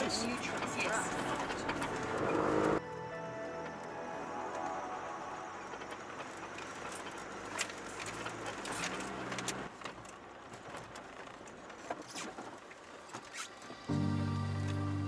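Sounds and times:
water wash and tyre noise: 0.0 - 2.8, 4.2 - 13.9
low engine note: 13.6 - 15.0.

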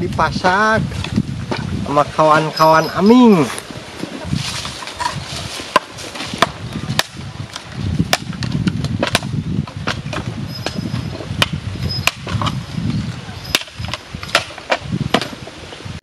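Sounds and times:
knife chopping into wood: 5.6 - 7.2, 8.1 - 10.8, 11.4 - 12.6, 13.5 - 15.4.

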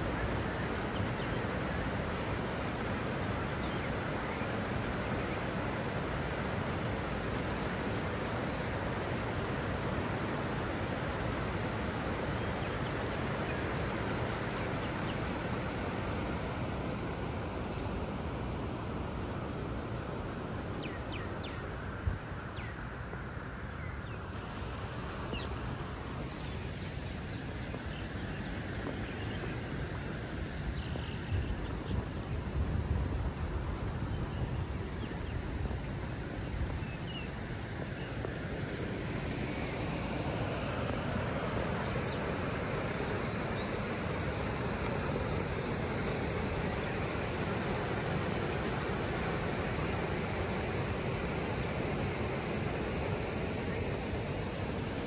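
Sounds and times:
water rushing over weir: 0.0 - 55.0.

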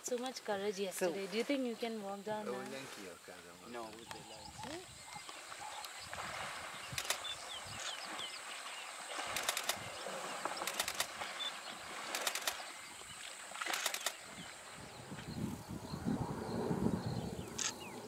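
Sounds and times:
water splashing: 2.4 - 15.2
faint bird calls: 3.6 - 16.0
sharp splashes: 6.0 - 14.7.

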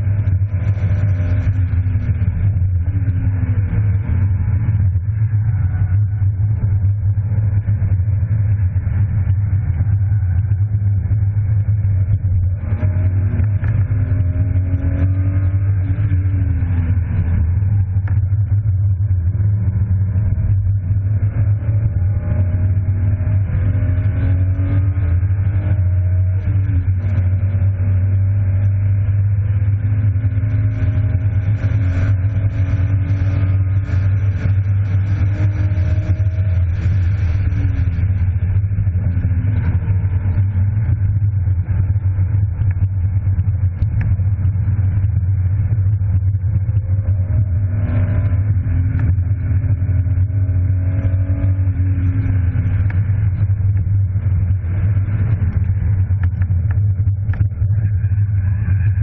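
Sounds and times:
car engine revving: 0.0 - 59.0
steady low rumble: 0.0 - 59.0.

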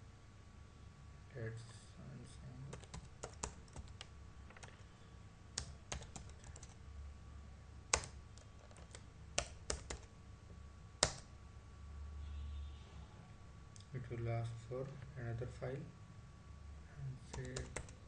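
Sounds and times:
computer keyboard typing: 2.7 - 4.8, 5.6 - 6.8, 7.9 - 10.1, 11.0 - 11.3, 17.3 - 18.0.

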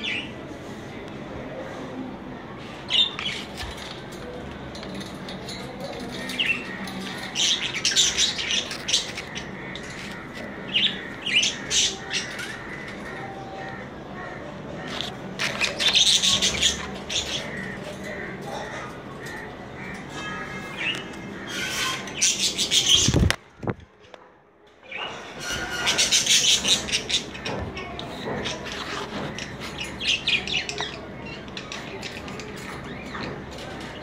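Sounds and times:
budgerigars chirping: 7.4 - 13.6.

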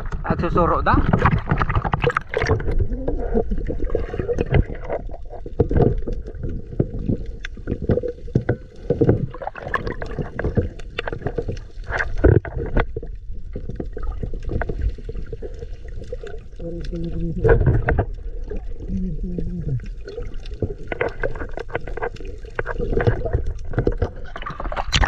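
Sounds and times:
underwater water rushing and bubbling: 0.0 - 25.0.

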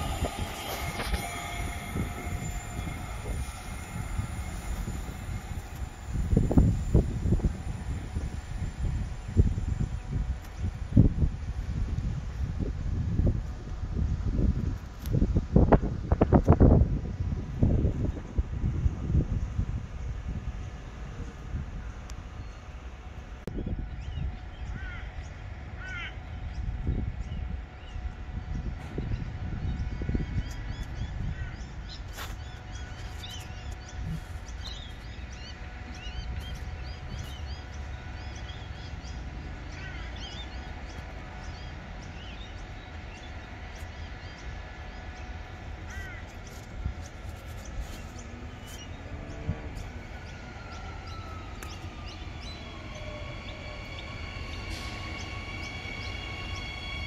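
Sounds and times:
steady high-pitched tones: 0.0 - 13.3, 49.7 - 57.0
electric train whine: 0.0 - 57.0
outdoor background noise: 0.0 - 57.0.

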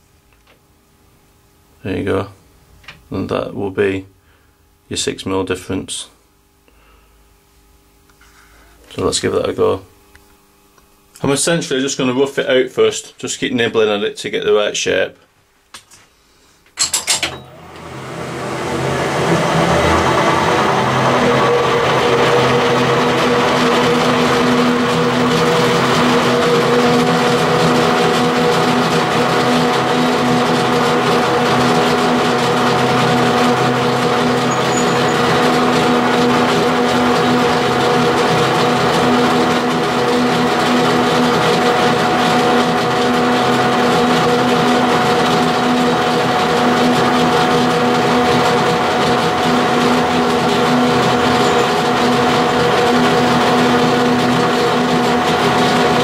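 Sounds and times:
higher steady whine: 15.8 - 42.1, 45.1 - 56.0
metal lathe gearing whining: 16.8 - 56.0
cutting tool scraping aluminium: 34.2 - 36.4, 50.3 - 53.2.

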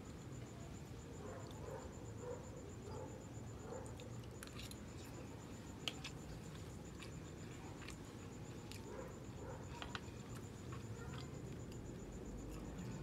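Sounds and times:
close chewing with mouth clicks: 3.8 - 13.0.

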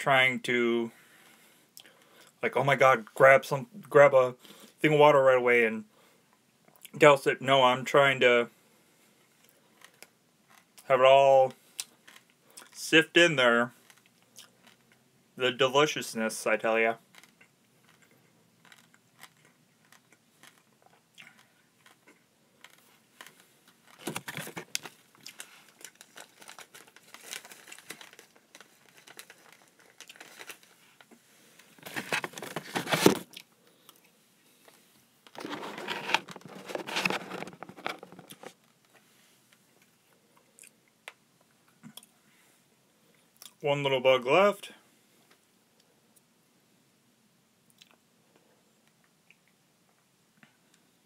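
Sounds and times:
plastic packet crinkling: 17.1 - 20.8, 21.8 - 33.4, 35.3 - 38.6.

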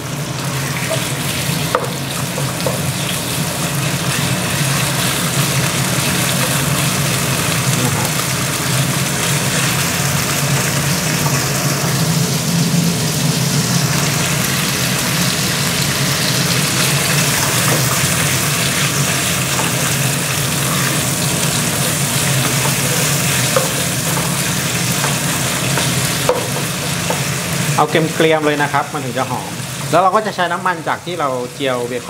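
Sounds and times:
bacon sizzling in oil: 0.0 - 32.0
range hood fan humming: 0.0 - 32.0
wooden spatula in pan: 17.2 - 27.7.

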